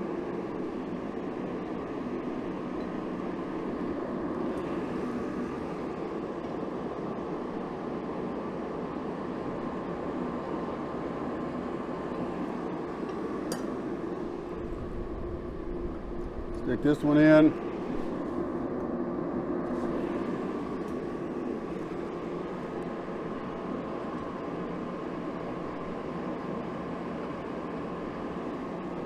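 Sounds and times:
forge burner rushing: 0.0s - 29.0s
low hum: 11.6s - 26.5s.

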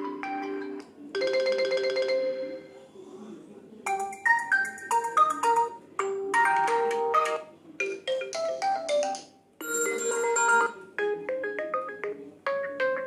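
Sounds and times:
ringtone chime tunes: 9.6s - 13.0s.

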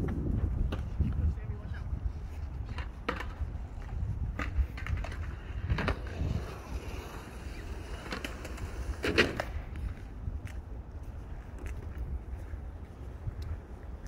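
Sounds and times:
skateboards clacking on concrete: 2.5s - 10.1s.

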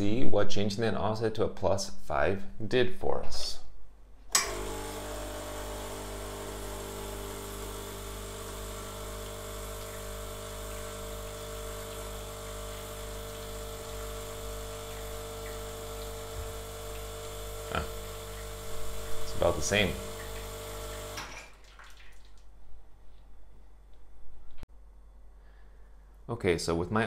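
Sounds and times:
espresso machine pump humming: 4.4s - 21.3s.

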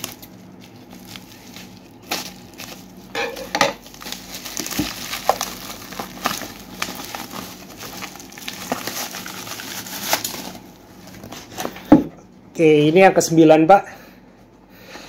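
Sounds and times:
bubble wrap crinkling: 0.0s - 11.8s.

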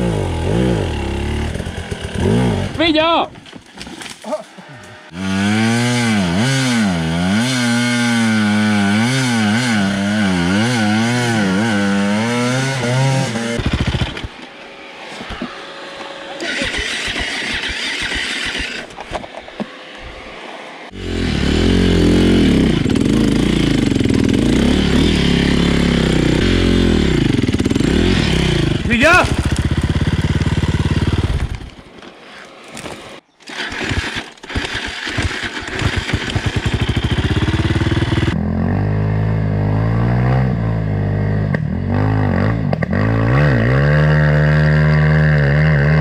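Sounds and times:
dirt bike engine revving: 0.0s - 3.0s, 4.9s - 14.4s, 16.1s - 19.0s, 20.9s - 31.8s, 33.5s - 46.0s.

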